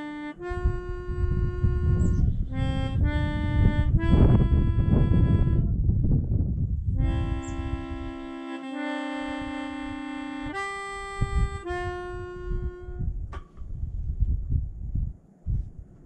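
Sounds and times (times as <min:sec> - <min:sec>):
long held chords: 0:00.0 - 0:05.8, 0:06.9 - 0:13.2
wind rumble on microphone: 0:00.0 - 0:16.0.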